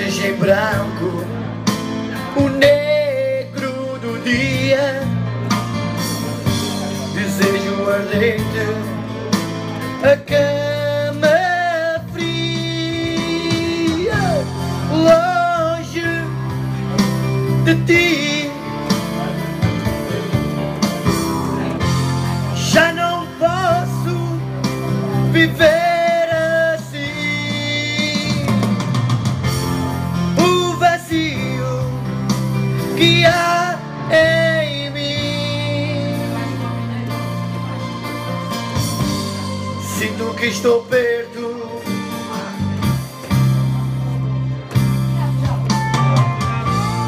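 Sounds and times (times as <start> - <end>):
man singing with vibrato: 0.0 - 5.6, 6.2 - 20.8, 21.6 - 29.0, 29.6 - 43.2, 46.4 - 47.0
instrumental backing music: 0.0 - 47.0.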